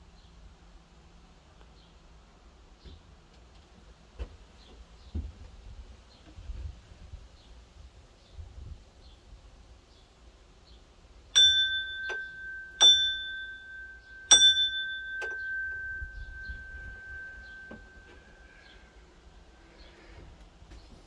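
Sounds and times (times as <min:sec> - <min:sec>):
small metal bell ringing: 0:11.4 - 0:18.8
light metal clinks: 0:11.4 - 0:18.9.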